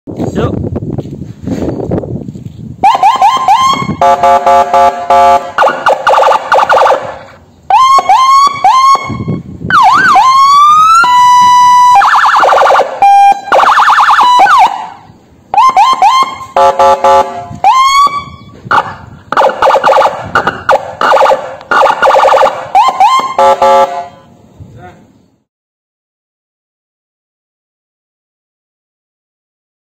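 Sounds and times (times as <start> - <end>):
police siren changing tones: 2.8 - 24.3.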